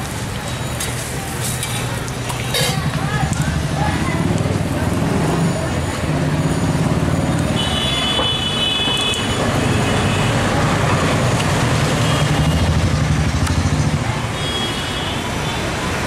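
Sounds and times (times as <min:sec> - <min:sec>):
traffic engine rumble: 0:00.0 - 0:16.0
vehicle horn: 0:07.5 - 0:10.4.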